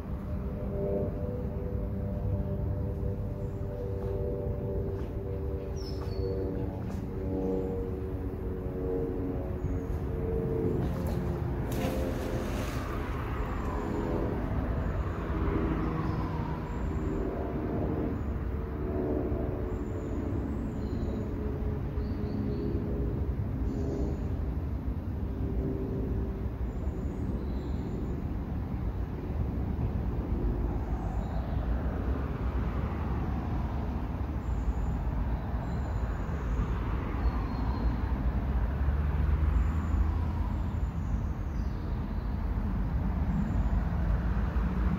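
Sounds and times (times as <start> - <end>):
vehicle passing: 0.0 - 19.6, 36.1 - 41.2
low rumble of traffic: 0.0 - 44.9.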